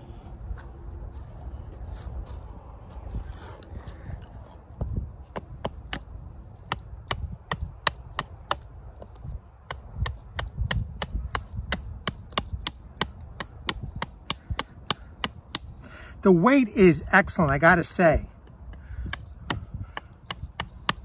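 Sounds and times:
knife chopping wood: 5.3 - 15.8, 18.5 - 21.0.

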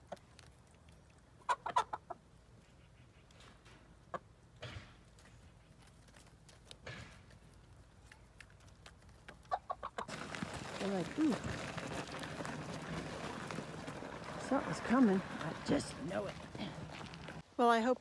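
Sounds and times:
hens clucking: 1.3 - 4.4, 9.0 - 17.4.

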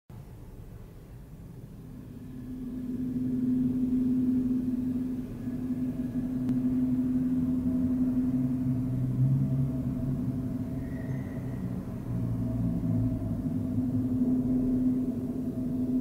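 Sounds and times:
lower tone: 0.9 - 16.0
metal rod sculpture low drone: 1.2 - 16.0.

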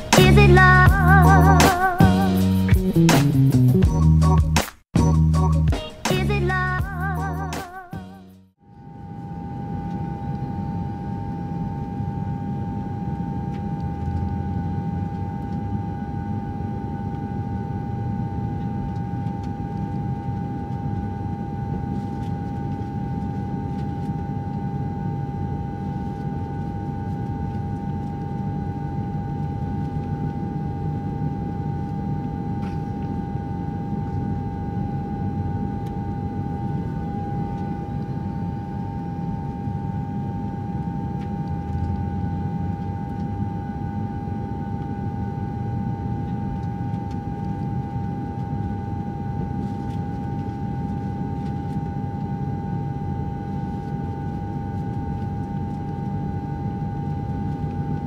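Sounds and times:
constant whine: 0.0 - 58.0
jet engine and airflow roar: 8.8 - 58.0.

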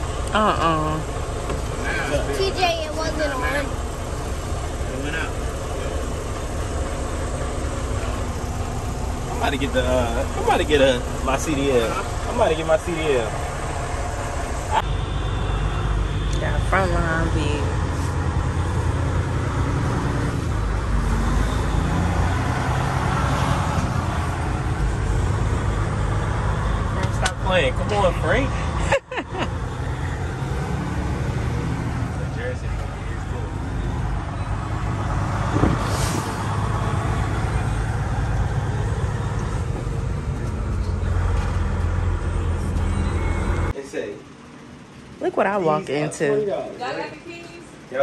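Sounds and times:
truck diesel engine rumbling: 0.0 - 48.0
short air hiss: 35.7 - 36.6.

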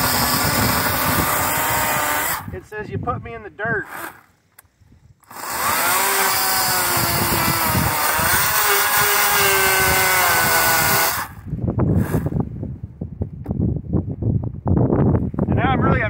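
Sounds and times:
chainsaw cutting wood: 0.0 - 2.5, 3.9 - 4.4, 5.2 - 12.4.

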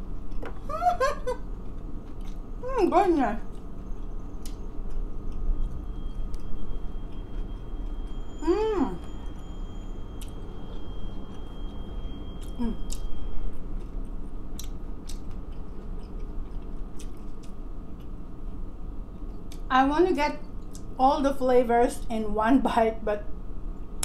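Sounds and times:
person chewing: 1.6 - 2.4, 12.4 - 13.1, 13.8 - 18.2
person humming mmm: 8.4 - 9.1, 12.4 - 13.0.

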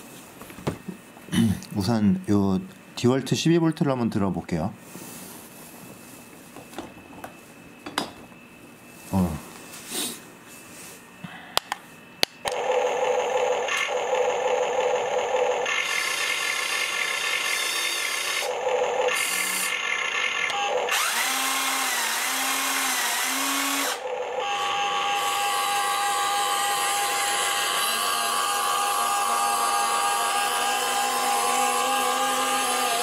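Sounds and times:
electric motors whining: 12.4 - 33.0.

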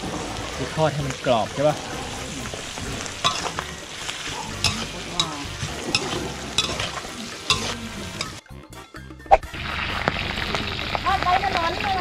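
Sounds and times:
duck skin sizzling in oil: 0.0 - 8.4, 9.3 - 12.0
metal spatula clinking wok: 3.2 - 8.4.

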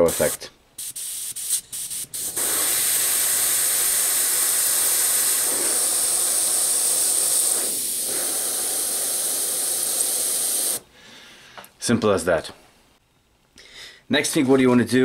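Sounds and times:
airbrush hissing: 0.0 - 10.9.

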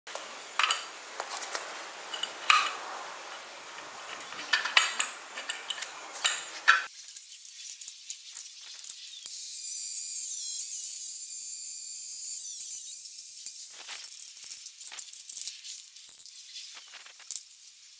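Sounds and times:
light clicks and scrapes: 0.6 - 9.2
metal clanks and rattles: 3.8 - 6.9.

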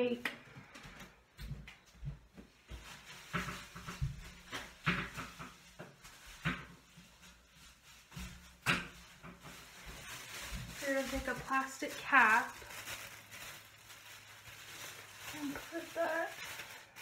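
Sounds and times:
household knocks and clatters: 1.5 - 6.8.

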